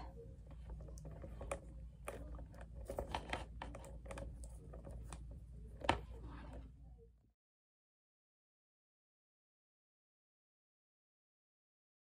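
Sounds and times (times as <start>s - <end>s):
low room hum: 0.0s - 7.4s.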